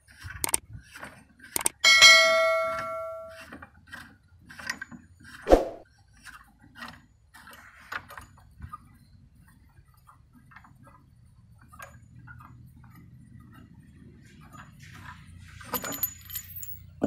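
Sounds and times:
metal screw clicking as turned: 0.4 - 0.6, 1.5 - 1.8.

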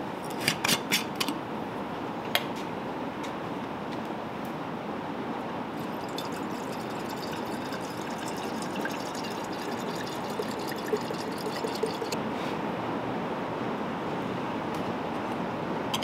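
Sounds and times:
oil pouring into glass jar: 5.8 - 12.2.

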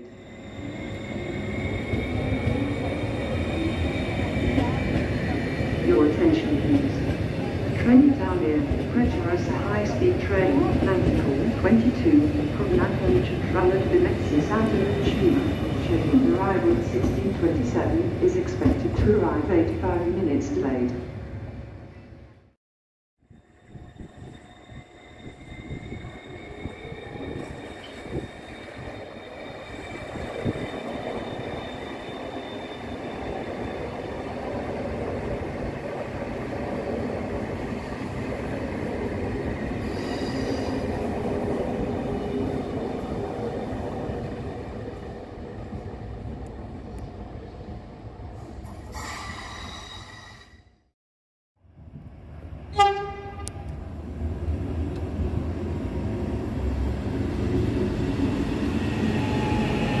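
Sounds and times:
approaching train rumble: 51.6 - 60.0
train rumbling past: 51.7 - 60.0
train horn blast: 52.7 - 53.7.

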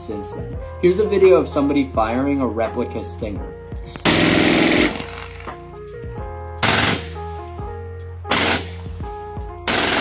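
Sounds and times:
machine gun automatic fire: 6.6 - 7.1, 9.7 - 10.0.

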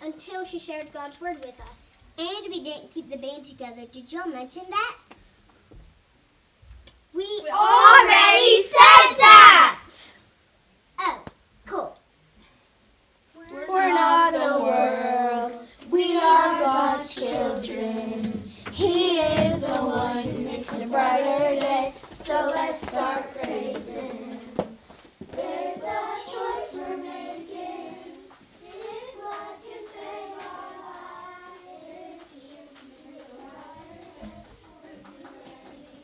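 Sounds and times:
children singing: 7.5 - 9.7, 13.4 - 36.0.

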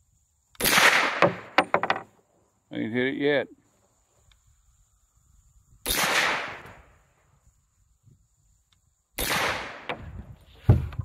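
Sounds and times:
rifle shots: 0.6 - 1.5, 5.9 - 6.8, 9.2 - 10.0.

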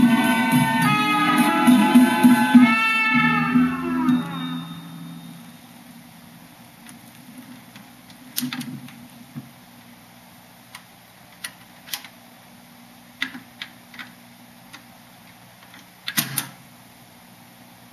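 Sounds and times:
record changer mechanism clunks: 15.8 - 16.6.

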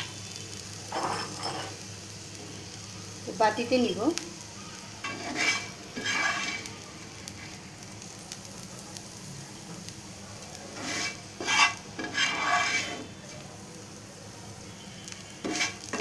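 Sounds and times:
oil sizzling: 0.0 - 16.0
wooden spatula scraping pan: 5.0 - 6.7, 10.7 - 13.1, 15.4 - 16.0.

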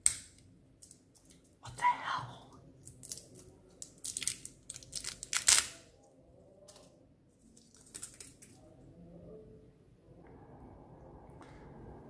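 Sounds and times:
plastic packaging crinkling: 3.0 - 5.8, 7.5 - 8.6.

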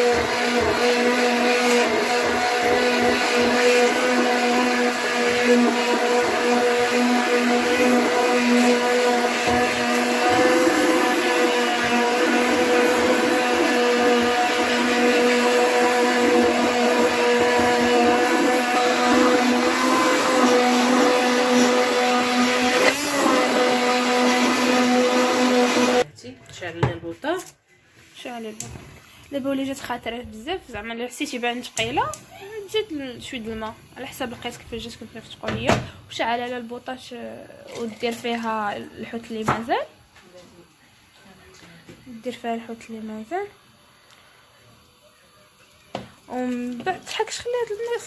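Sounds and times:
immersion blender running: 0.0 - 26.1.

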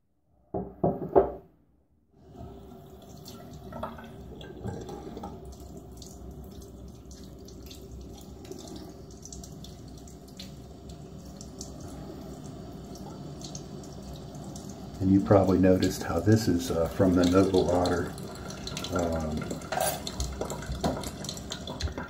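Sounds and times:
water splashes and drips: 2.2 - 22.0
tap running into a sink: 17.0 - 22.0.

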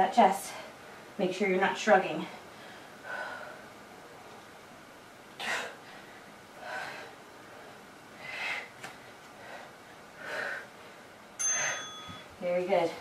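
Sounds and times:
woman breathing hard: 2.2 - 3.8, 5.4 - 12.2.

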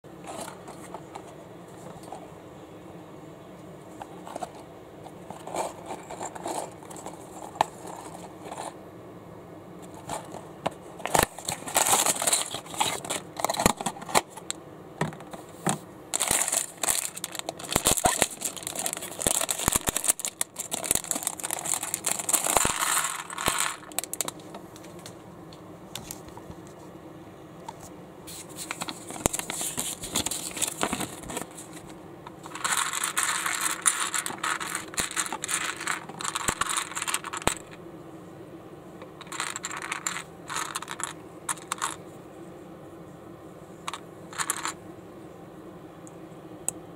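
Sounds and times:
plastic bag crinkling and tearing: 11.1 - 13.8, 16.2 - 24.4, 28.9 - 31.7
plastic bricks clattering: 11.1 - 14.1, 16.2 - 24.4, 32.4 - 37.8, 39.2 - 42.0, 43.9 - 44.8.

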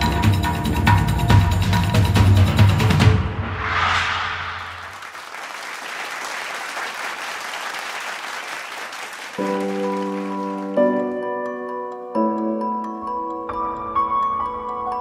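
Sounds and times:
audience applause: 4.9 - 10.9.

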